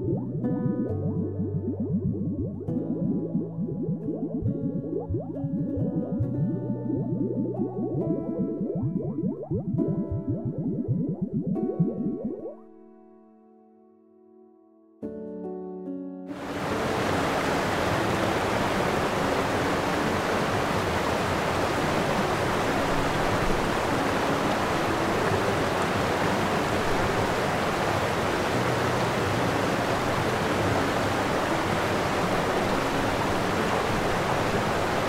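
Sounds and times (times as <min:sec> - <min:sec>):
faint held music notes: 0:00.0 - 0:12.7
rushing water: 0:16.3 - 0:35.0.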